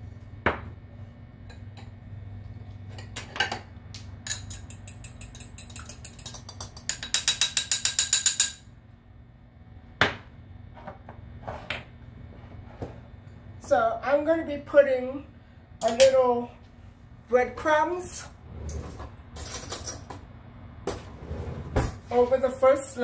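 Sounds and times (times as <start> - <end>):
fork clinking in glass bowl: 4.3 - 8.6.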